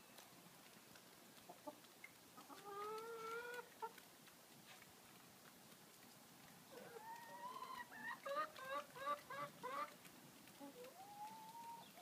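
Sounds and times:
hen clucking: 1.5s - 4.0s, 6.7s - 10.0s, 10.6s - 12.0s.

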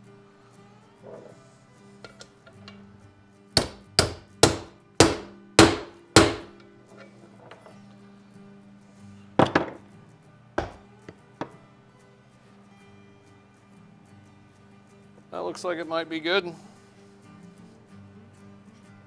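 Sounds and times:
hammer striking metal driver: 3.6s - 6.6s.

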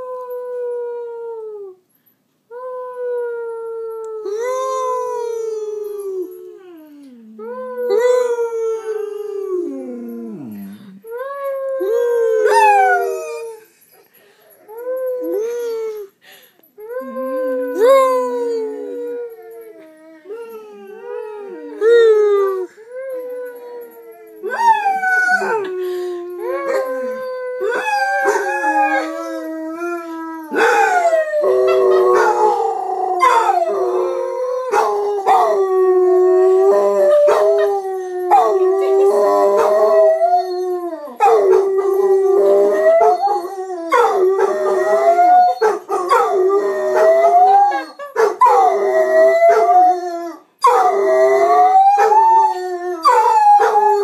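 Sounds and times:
dogs howling together: 11.8s - 13.6s, 17.0s - 54.0s.

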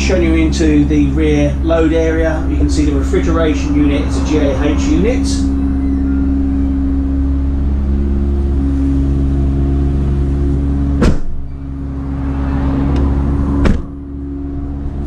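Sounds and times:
van engine humming: 0.0s - 15.0s
van doors slamming: 10.8s - 11.6s, 12.9s - 14.0s.

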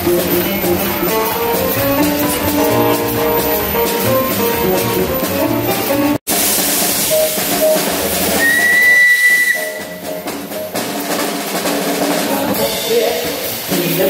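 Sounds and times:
background music with drums: 0.0s - 14.0s
steam locomotive whistle blast: 8.2s - 10.2s.

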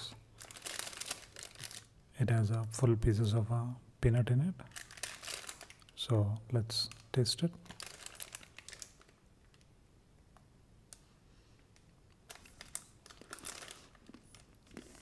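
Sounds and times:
foil wrapper crinkling: 0.0s - 1.9s, 4.7s - 6.0s, 7.6s - 9.6s, 12.3s - 15.0s.

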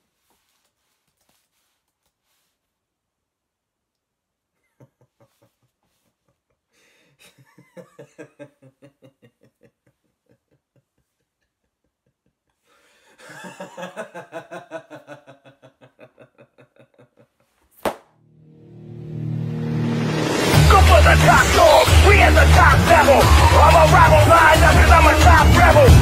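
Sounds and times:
young man laughing: 4.6s - 6.6s, 7.2s - 12.5s, 13.2s - 17.5s.

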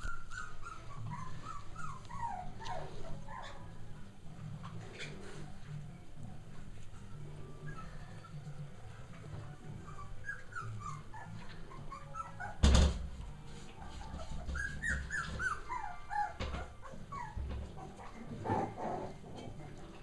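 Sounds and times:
puppies squeaky whimpers: 0.0s - 4.0s, 7.5s - 8.7s, 9.6s - 12.9s, 13.7s - 19.2s.

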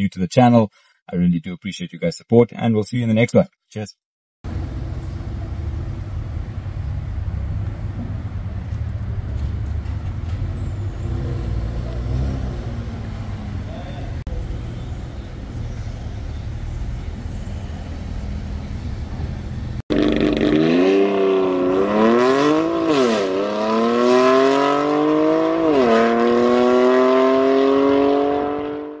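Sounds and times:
car engine accelerating hard: 10.6s - 14.3s, 19.9s - 29.0s.

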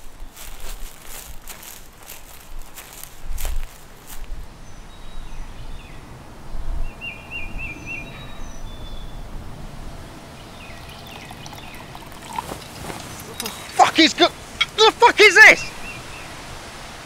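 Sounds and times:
small birds chirping: 10.0s - 15.0s, 15.6s - 16.4s
bird trill: 10.3s - 12.4s.

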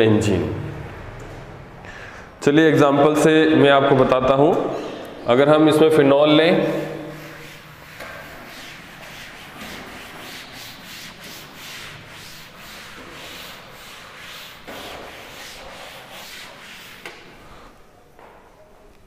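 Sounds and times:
cloth rubbing on chalkboard: 6.2s - 17.8s.

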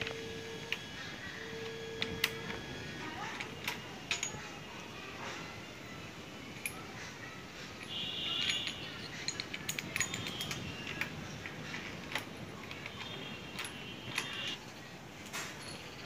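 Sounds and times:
high ringing tone: 0.0s - 4.8s, 12.9s - 14.7s
small metal parts clinking: 0.4s - 5.4s, 6.4s - 16.0s.

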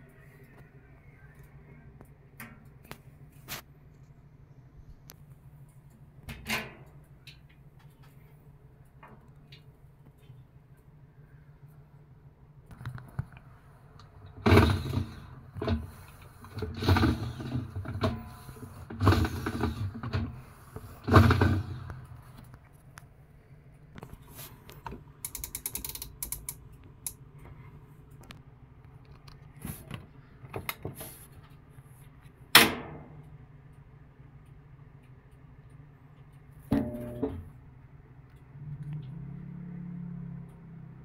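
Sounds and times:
soft mechanical clicks and ticks: 0.0s - 14.4s, 15.2s - 41.0s
washing machine agitator creaking: 14.1s - 22.5s.

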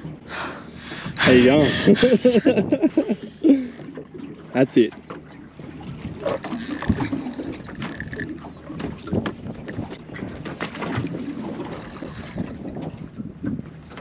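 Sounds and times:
wind buffeting microphone: 0.0s - 3.5s, 5.4s - 14.0s
boat hull slapping on water: 0.0s - 14.0s
fishing reel clatter and whir: 6.3s - 8.8s.

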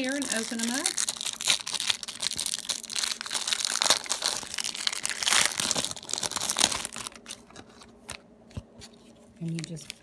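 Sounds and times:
plastic packets crinkling: 0.0s - 8.2s, 9.4s - 10.0s.

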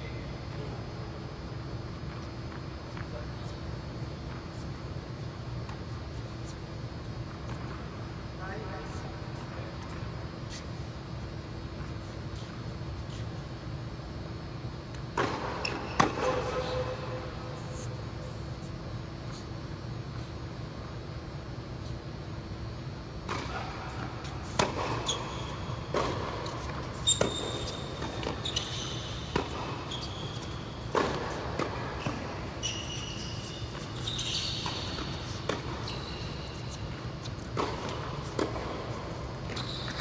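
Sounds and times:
sneaker squeaks on court: 14.2s - 20.3s, 23.2s - 40.0s
tennis balls struck by rackets: 14.9s - 17.0s, 23.2s - 32.4s, 33.6s - 35.9s, 36.6s - 39.6s
tennis balls bouncing on hard court: 14.9s - 17.8s, 23.2s - 40.0s.

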